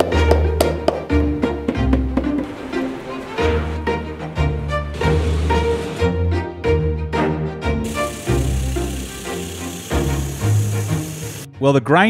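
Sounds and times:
bowed strings: 0:01.2 - 0:10.9.

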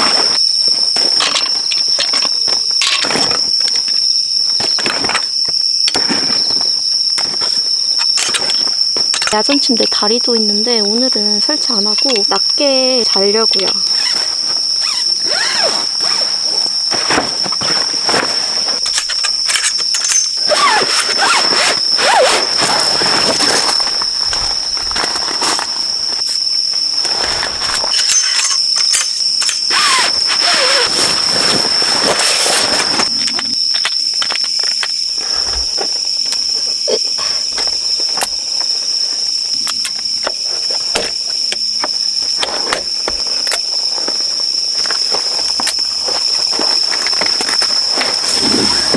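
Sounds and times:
high insect drone: 0:00.0 - 0:48.9
poles scraping and squeaking: 0:27.2 - 0:35.8.

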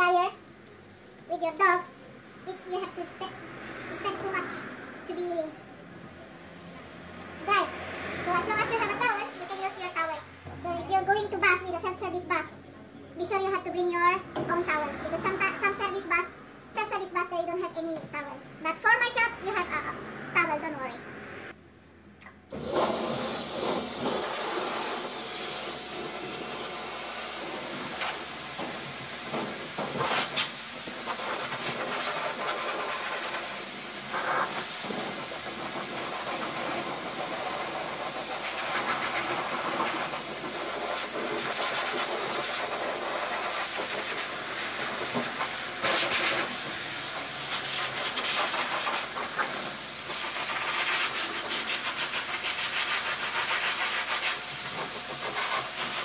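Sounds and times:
dog blow dryer hissing: 0:22.5 - 0:56.0.

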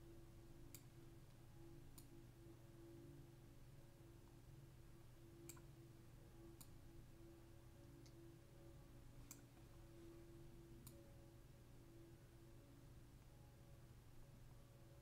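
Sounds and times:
low steady hum: 0:00.0 - 0:15.0
computer mouse clicks: 0:05.4 - 0:05.7, 0:09.2 - 0:09.5.

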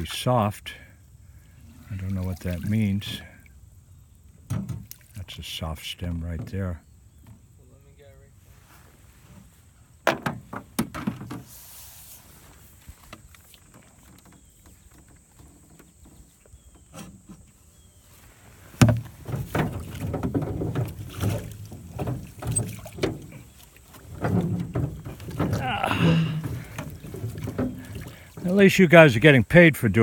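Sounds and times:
paddle strokes in water: 0:01.5 - 0:03.0, 0:11.3 - 0:29.2
paddle knocking on metal hull: 0:18.8 - 0:28.5.

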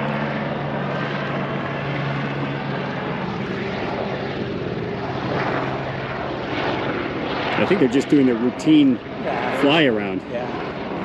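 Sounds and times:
helicopter engine and rotor: 0:00.0 - 0:11.0.

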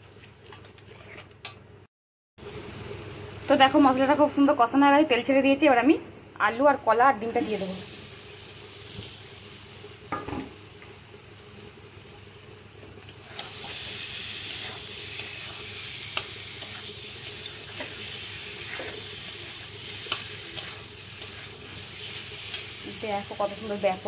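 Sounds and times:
metal spatula scraping a pan: 0:00.9 - 0:01.4, 0:13.3 - 0:22.8
frying sizzle in a wok: 0:02.4 - 0:06.0, 0:06.8 - 0:24.0.

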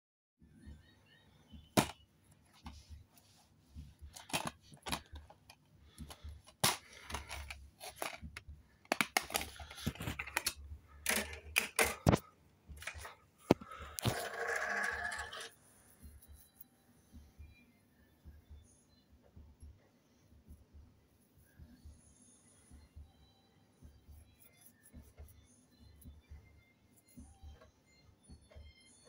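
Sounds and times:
plastic case clicking and snapping: 0:04.2 - 0:05.5, 0:06.5 - 0:08.2, 0:08.8 - 0:12.2.

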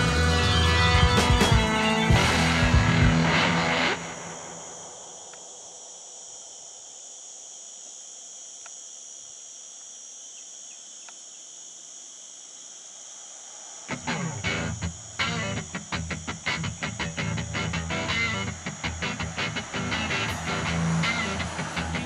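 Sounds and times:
guitar music with beat: 0:00.0 - 0:04.2, 0:13.9 - 0:22.0
high-pitched insect drone: 0:00.0 - 0:22.0
low hiss: 0:02.4 - 0:22.0.

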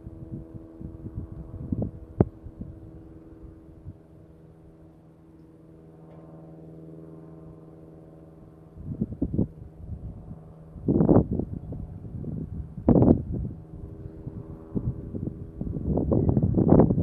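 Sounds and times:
wind buffeting microphone: 0:00.0 - 0:04.3, 0:08.7 - 0:17.0
low hum: 0:00.0 - 0:17.0.

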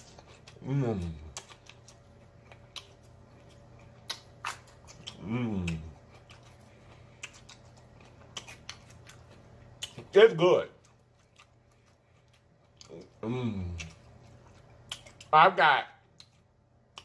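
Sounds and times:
person chewing food: 0:00.0 - 0:15.4, 0:16.0 - 0:17.0
person humming: 0:00.6 - 0:01.3, 0:05.2 - 0:06.0, 0:13.0 - 0:13.9.

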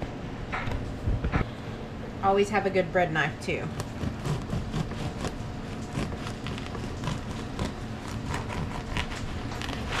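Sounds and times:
bread knife sawing through crust: 0:03.8 - 0:10.0.

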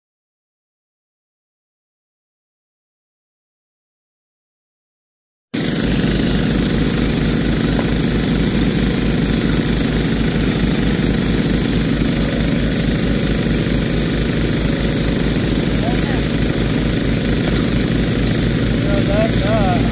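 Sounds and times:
small gas engines running: 0:05.6 - 0:19.9.

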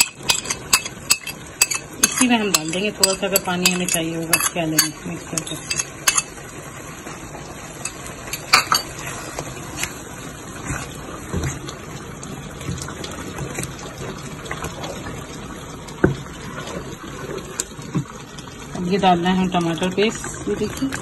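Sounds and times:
spatula stirring sauce: 0:00.0 - 0:06.4
sauce sizzling in a pan: 0:00.0 - 0:21.0.

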